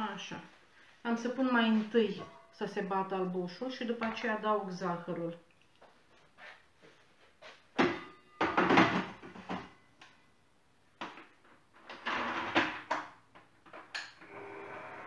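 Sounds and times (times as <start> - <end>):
electric mixer running: 14.2 - 15.0.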